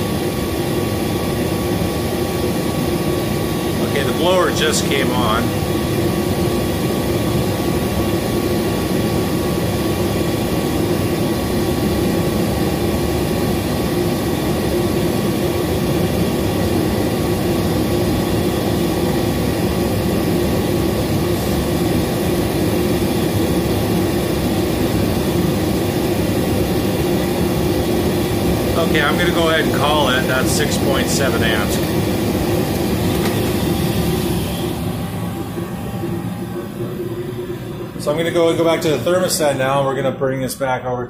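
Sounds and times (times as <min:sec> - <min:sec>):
furnace air rush: 0:00.0 - 0:10.1, 0:20.0 - 0:40.1
furnace hum: 0:00.0 - 0:41.0.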